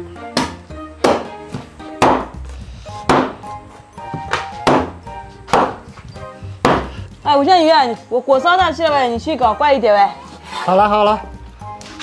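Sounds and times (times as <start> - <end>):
background music: 0.0 - 12.0
cleaver chopping on wooden board: 0.4 - 2.4, 3.0 - 3.5, 4.2 - 5.9, 6.6 - 7.0.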